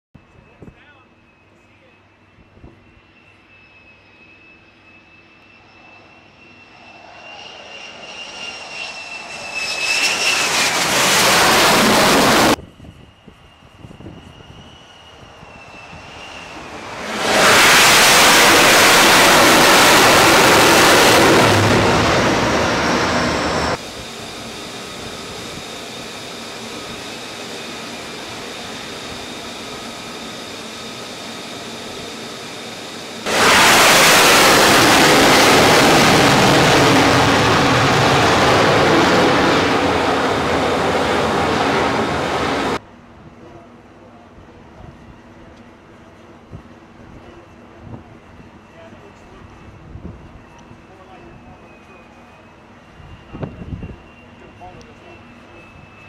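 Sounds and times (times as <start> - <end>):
jet engine roar: 0.2 - 42.8, 43.6 - 56.0
steady rushing with high whine: 6.3 - 42.8.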